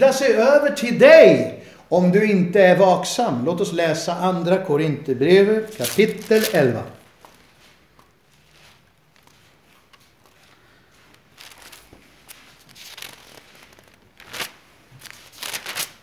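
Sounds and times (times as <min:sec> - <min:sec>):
paper pages rustling: 0:05.6 - 0:16.0.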